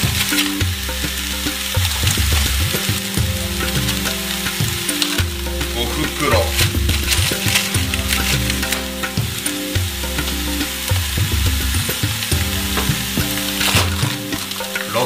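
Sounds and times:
background music: 0:00.0 - 0:15.0
stirring clicks: 0:00.2 - 0:11.2.

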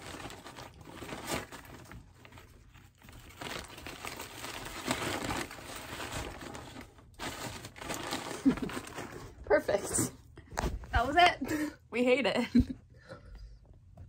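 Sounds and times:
paper bag crinkling: 0:00.0 - 0:09.8.

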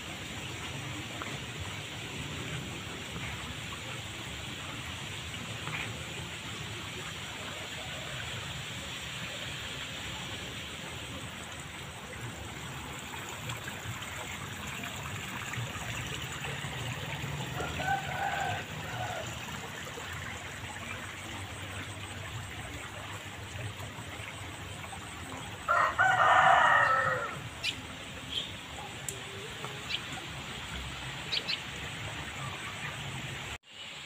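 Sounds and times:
water running in a ditch: 0:00.0 - 0:34.0
rooster crowing: 0:17.6 - 0:19.4, 0:25.7 - 0:27.4.

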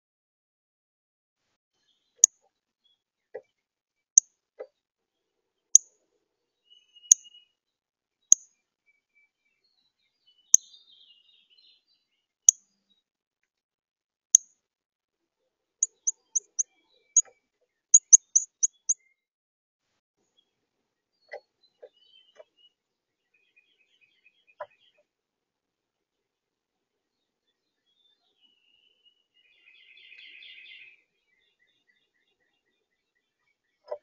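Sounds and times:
bird chip calls: 0:15.8 - 0:17.4, 0:18.0 - 0:19.0.

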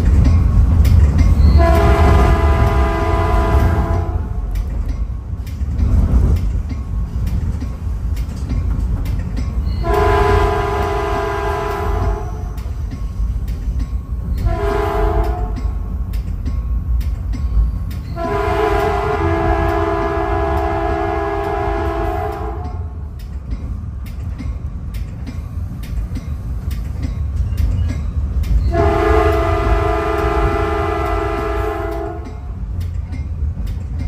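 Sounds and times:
train rumbling on rails: 0:00.0 - 0:34.0
train horn blasts: 0:01.5 - 0:04.5, 0:09.8 - 0:12.6, 0:14.4 - 0:15.8, 0:18.2 - 0:23.0, 0:28.7 - 0:32.6.

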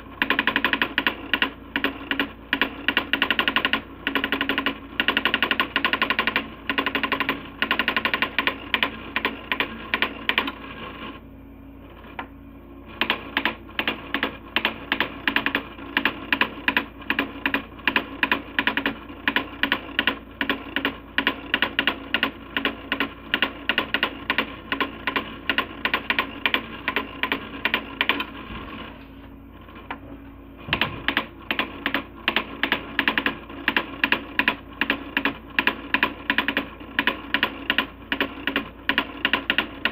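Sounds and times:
printer steady hum: 0:00.0 - 0:39.9.

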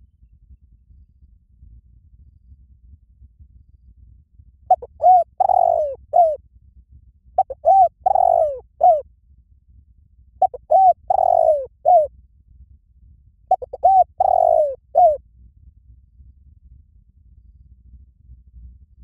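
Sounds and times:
dove cooing: 0:04.7 - 0:06.4, 0:07.4 - 0:09.0, 0:10.4 - 0:12.1, 0:13.5 - 0:15.2.

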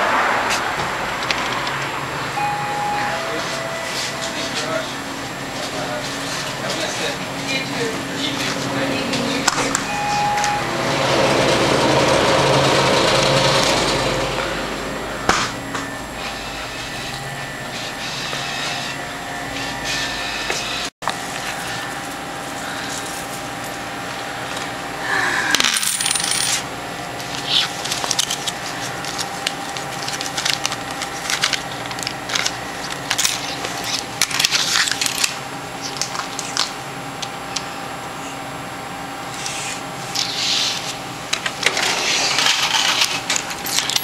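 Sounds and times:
steady background hum: 0:00.0 - 0:44.0
coins clinking on a counter: 0:25.6 - 0:26.6, 0:43.4 - 0:44.0.

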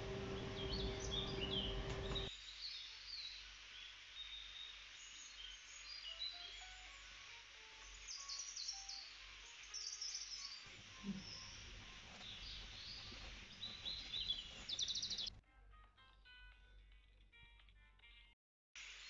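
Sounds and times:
birds chirping: 0:00.0 - 0:02.3, 0:07.8 - 0:15.3
faint melodic notes: 0:00.0 - 0:02.3
steady hiss: 0:00.0 - 0:15.2, 0:18.8 - 0:19.0.

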